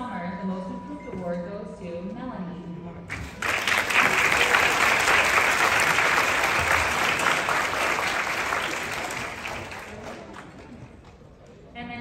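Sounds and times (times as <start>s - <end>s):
audience applauding: 3.1s - 11.2s.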